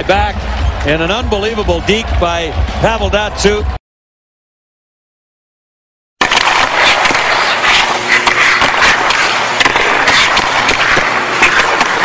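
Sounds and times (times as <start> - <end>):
hockey stick clacking pucks: 6.3 - 12.0
skates scraping ice: 6.3 - 12.0.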